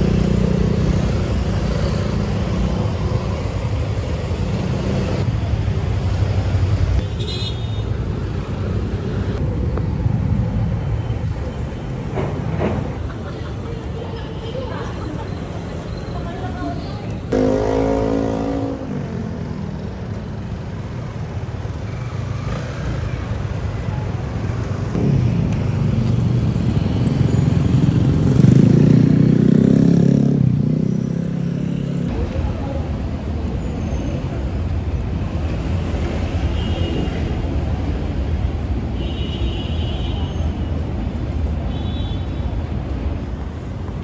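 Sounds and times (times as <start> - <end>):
cars and motorcycles passing: 0.0 - 44.0
loud engine: 17.3 - 19.9.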